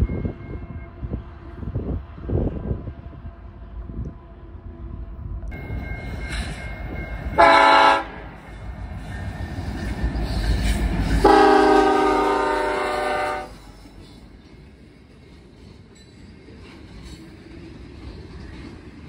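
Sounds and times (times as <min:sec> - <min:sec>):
passing train rumble: 0:00.0 - 0:19.0
locomotive air horn blasts: 0:07.4 - 0:08.3, 0:11.2 - 0:13.8.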